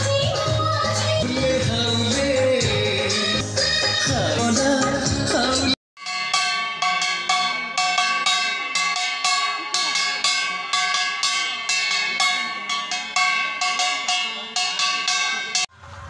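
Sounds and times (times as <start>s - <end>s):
metal bell ringing: 6.0s - 15.7s.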